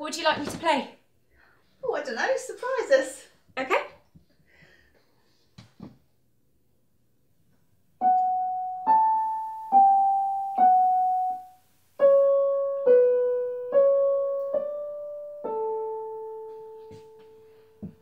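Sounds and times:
electronic keyboard tune: 8.0s - 17.5s.

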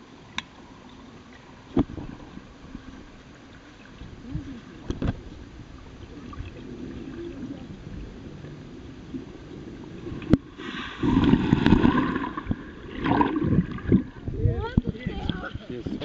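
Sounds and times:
muffled underwater rumble: 0.0s - 16.0s
person plunging into water: 10.2s - 15.5s.

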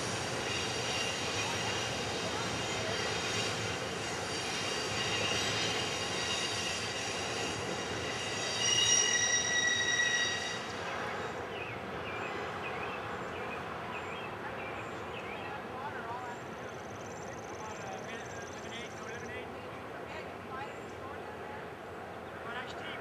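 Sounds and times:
train wheels squealing on rail: 0.0s - 13.4s
train rolling rumble: 0.0s - 19.3s.

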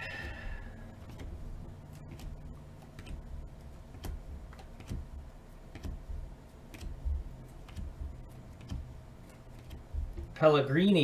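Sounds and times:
cards being flipped: 3.9s - 6.0s.

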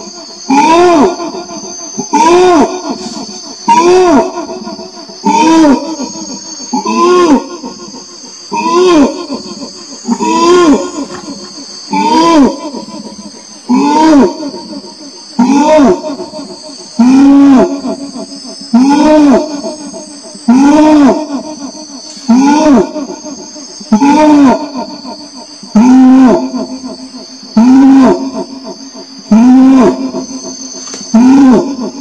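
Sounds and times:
orangutan deep call: 0.0s - 32.0s
steady high hum: 0.0s - 32.0s.

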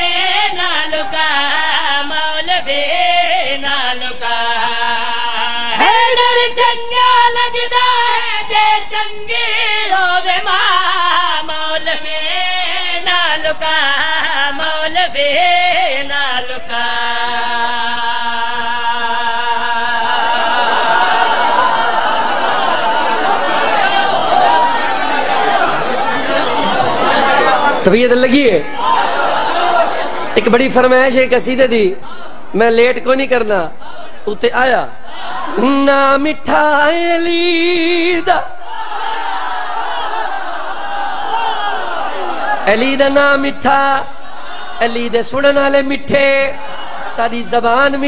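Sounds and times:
man chanting into microphone: 0.0s - 20.5s, 30.4s - 38.7s, 42.6s - 48.0s
crowd voices: 20.0s - 31.0s, 31.7s - 32.8s.

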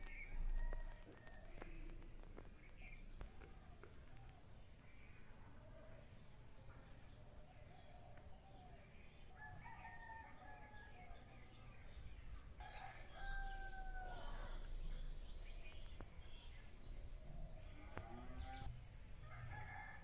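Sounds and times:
faint rooster crowing: 0.1s - 2.0s, 7.7s - 11.6s, 12.6s - 14.8s, 17.4s - 20.0s.

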